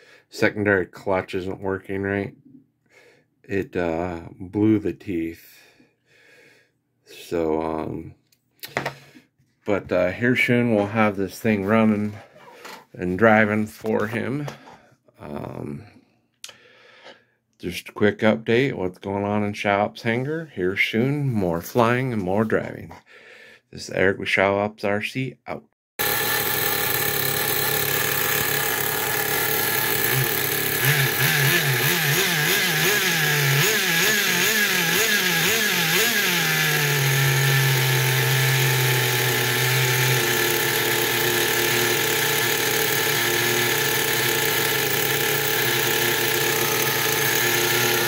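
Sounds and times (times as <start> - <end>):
nitro engine idling: 26.0 - 48.0
nitro engine revving: 29.5 - 48.0.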